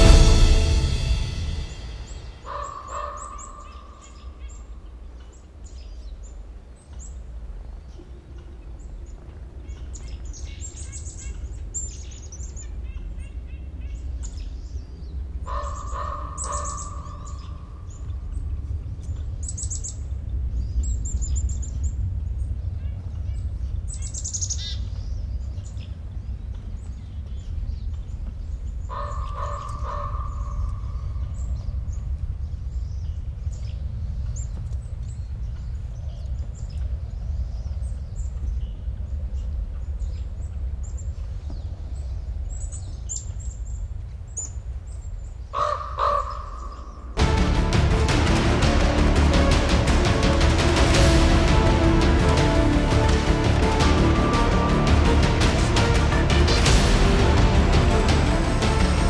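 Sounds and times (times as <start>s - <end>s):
songbirds chirping: 0.0s - 59.0s
low steady rumble: 47.1s - 59.0s.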